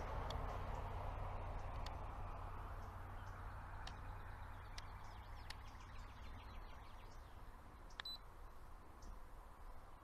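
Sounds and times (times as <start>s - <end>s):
faint bird chirps: 2.7s - 8.3s.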